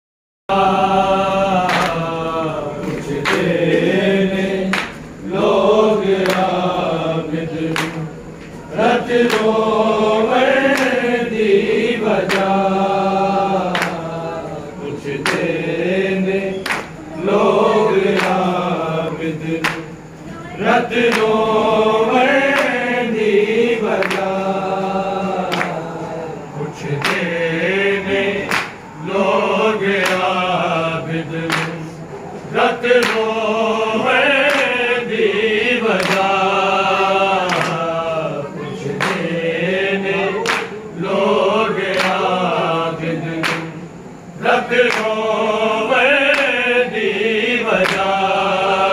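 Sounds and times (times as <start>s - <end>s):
men chanting in unison: 0.5s - 48.9s.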